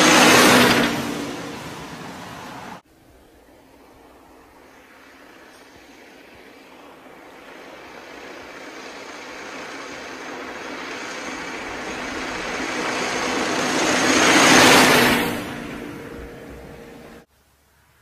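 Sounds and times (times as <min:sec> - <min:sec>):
vintage car passing by: 0:00.0 - 0:17.3.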